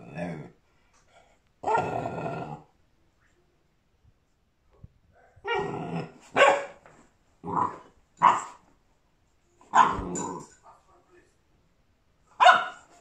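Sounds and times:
puppy barking: 0:06.3 - 0:06.8, 0:08.2 - 0:08.6, 0:09.7 - 0:10.2, 0:12.4 - 0:12.9.

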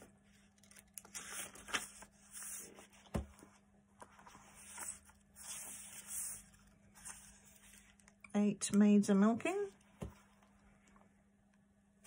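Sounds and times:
paper pages rustling: 0:00.2 - 0:08.2.

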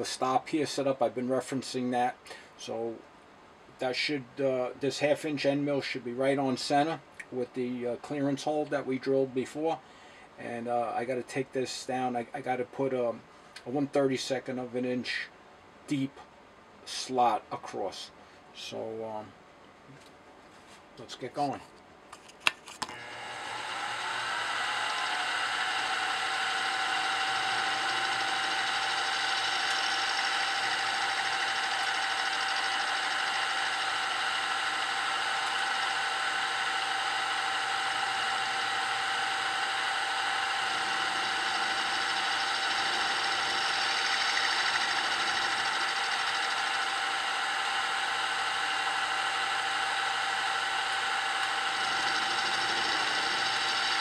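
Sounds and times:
end mill cutting metal: 0:22.9 - 0:54.0
milling machine spindle whine: 0:22.9 - 0:54.0.

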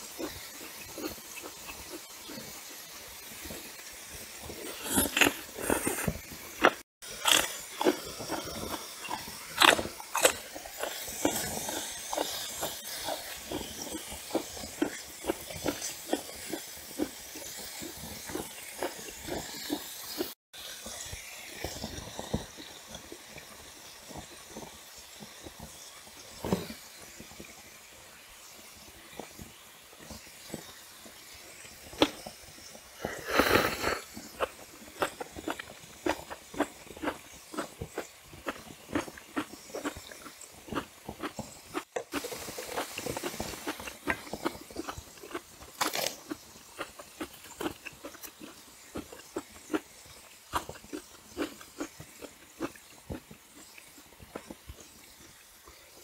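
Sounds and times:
close chewing with wet smacks: 0:00.0 - 0:20.4, 0:29.0 - 0:56.0
slurp or sharp breath: 0:04.5 - 0:14.8, 0:33.0 - 0:35.6.

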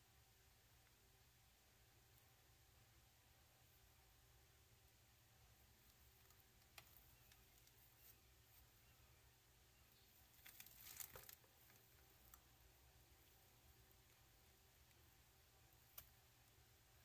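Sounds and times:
crackling rustle: 0:05.6 - 0:09.0, 0:09.9 - 0:16.6
faint clicks: 0:15.8 - 0:16.2.

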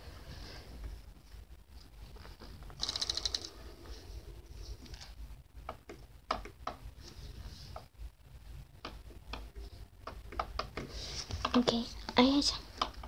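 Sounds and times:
low steady hum: 0:00.0 - 0:13.0
fidget spinner spinning on table: 0:02.7 - 0:03.8.

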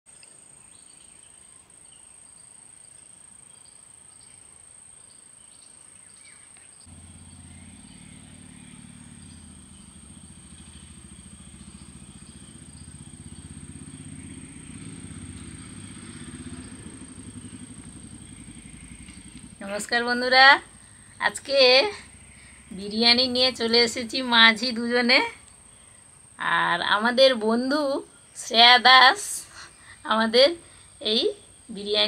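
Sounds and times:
bird-like chirps: 0:05.1 - 0:19.6
low engine rumble: 0:06.8 - 0:25.7.

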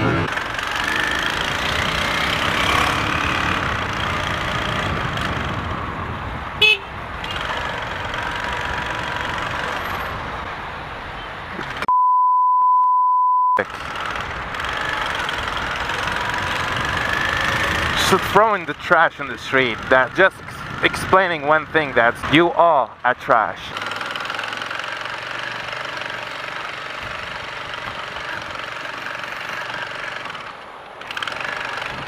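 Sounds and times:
motorcycle engine: 0:00.0 - 0:10.4, 0:13.6 - 0:21.8, 0:23.7 - 0:32.0
road noise: 0:00.0 - 0:12.0, 0:13.6 - 0:32.0
horn toot: 0:06.6 - 0:07.4
censor bleep tone: 0:11.9 - 0:13.6.

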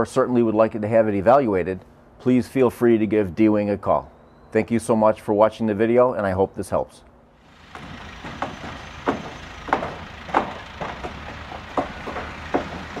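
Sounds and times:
regular sharp knocks: 0:07.5 - 0:13.0.

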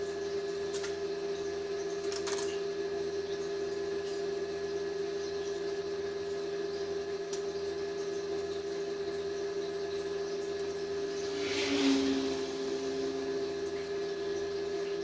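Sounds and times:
machine humming: 0:09.9 - 0:15.0.

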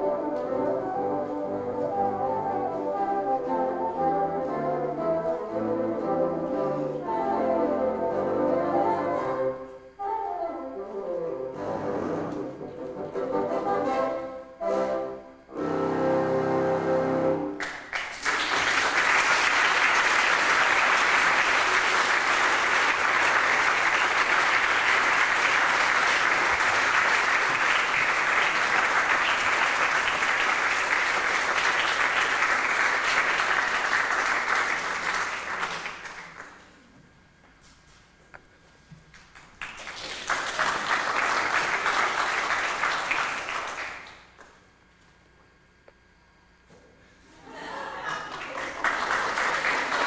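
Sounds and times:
audience applauding: 0:17.6 - 0:36.8, 0:39.1 - 0:44.6, 0:47.6 - 0:50.0.

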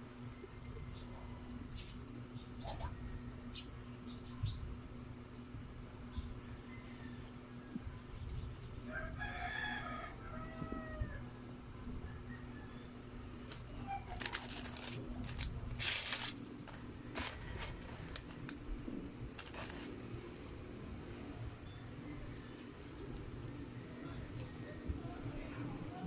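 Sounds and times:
paper wrapper crinkling: 0:13.4 - 0:18.7, 0:19.3 - 0:20.5.

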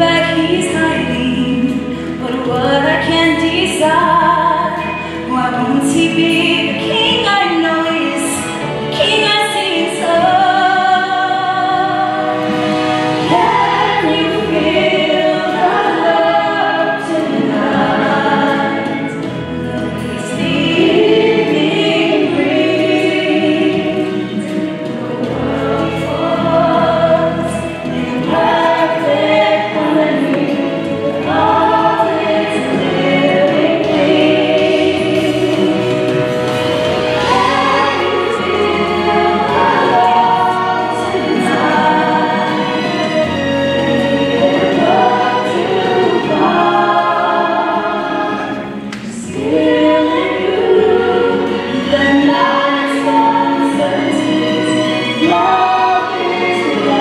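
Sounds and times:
choir singing: 0:00.0 - 0:57.0
musical accompaniment: 0:00.0 - 0:57.0.

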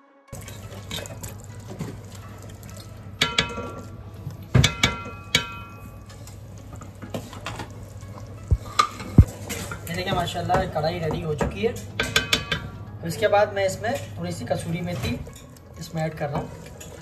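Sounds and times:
spatula stirring thick curry: 0:00.4 - 0:09.7
liquid sloshing: 0:00.4 - 0:10.0
spatula knocking metal pot: 0:04.5 - 0:05.8, 0:10.1 - 0:12.7.

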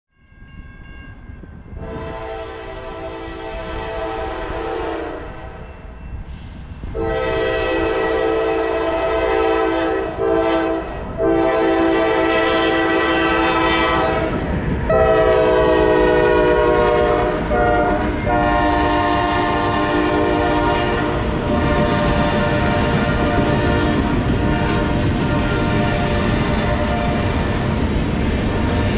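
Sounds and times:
locomotive horn blasts: 0:01.8 - 0:05.7, 0:06.9 - 0:27.6
low rumble of engines and wheels: 0:10.0 - 0:28.9.

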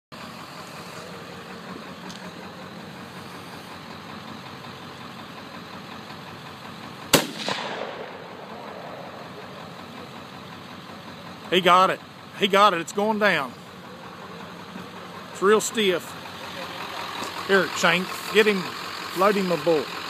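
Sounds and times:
rifle shot with echo: 0:07.1 - 0:08.3.

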